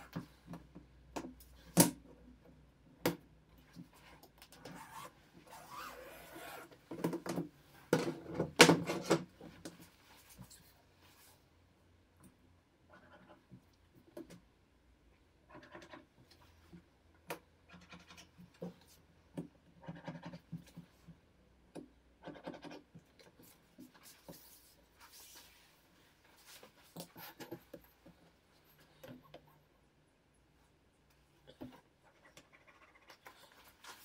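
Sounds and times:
sheet material scratching and rubbing: 4.7 - 6.7, 23.4 - 27.6.

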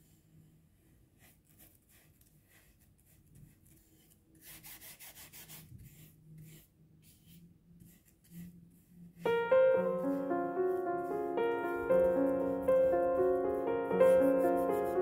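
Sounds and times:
brush scrubbing paint on paper: 1.1 - 15.0
piano music: 9.2 - 15.0.

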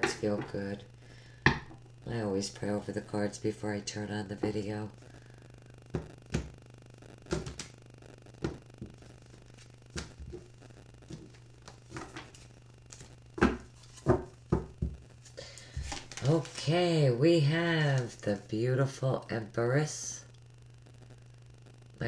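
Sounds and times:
faint low steady hum: 0.0 - 22.0
cards tapping and snapping: 7.3 - 7.8.

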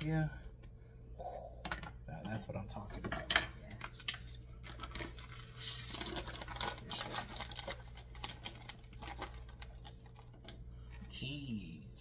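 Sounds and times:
plastic bag crinkling: 4.6 - 10.5.

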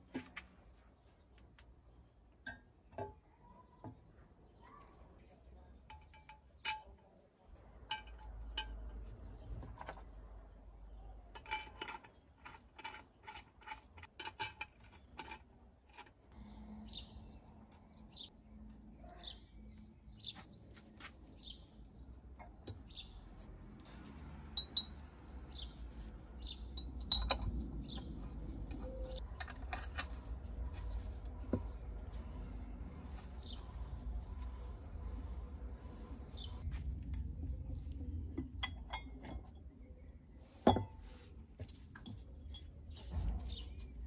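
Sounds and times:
small metal clicks and clinks: 11.3 - 16.2
birds chirping: 16.3 - 23.4, 25.4 - 36.7.

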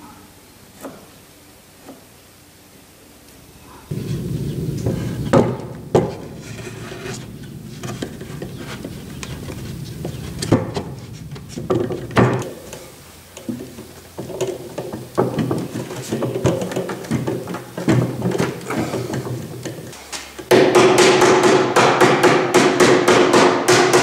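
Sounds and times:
low background noise: 0.0 - 24.0
wooden knocks: 3.9 - 12.5
wood scraping: 3.9 - 20.0.

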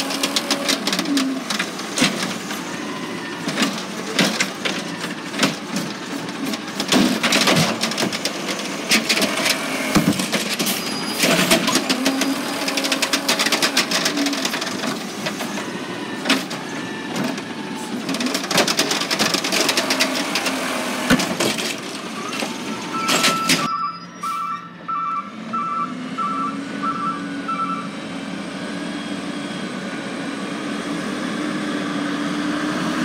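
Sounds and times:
hydraulic arm dumping trash cart: 0.0 - 23.7
garbage truck running: 0.0 - 33.0.

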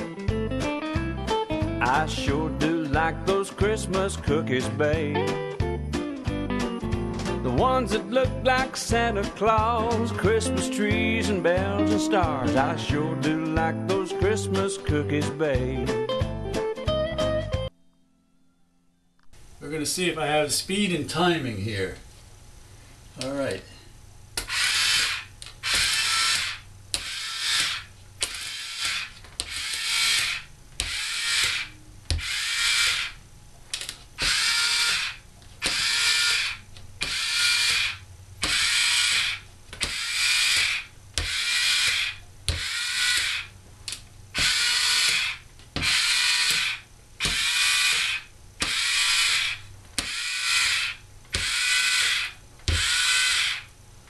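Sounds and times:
cookie press motor whirring: 24.4 - 33.2, 33.8 - 53.7.

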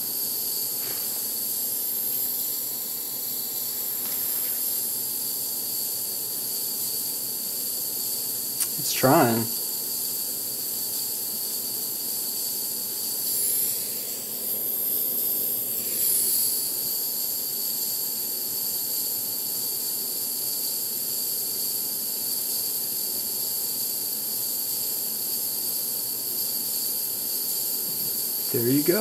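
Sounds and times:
blowtorch flame hissing: 0.1 - 18.8, 26.4 - 29.0.

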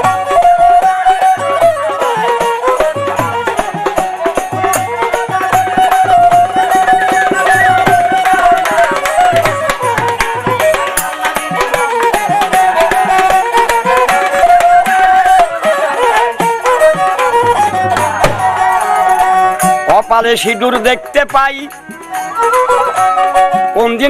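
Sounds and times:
bamboo flute melody: 0.0 - 24.0
drum strokes: 2.4 - 15.7, 16.3 - 20.1.

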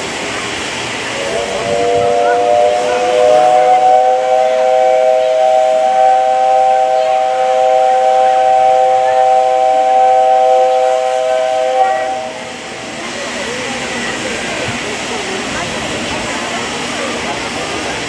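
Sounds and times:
steam whistle blast: 1.2 - 12.9.

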